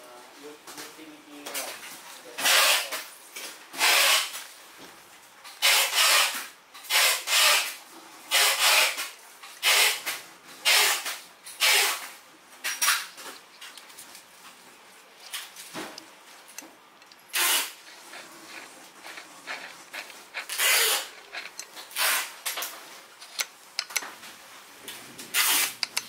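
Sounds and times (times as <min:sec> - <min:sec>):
hands rubbing plastic housing: 0:15.2 - 0:24.0, 0:25.4 - 0:26.0.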